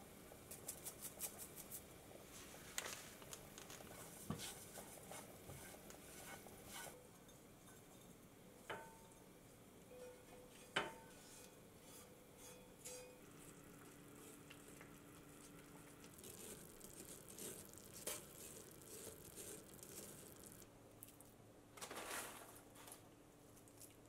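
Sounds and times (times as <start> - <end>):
soft scraping through a strainer: 3.9 - 7.0, 9.9 - 13.2, 15.4 - 20.6.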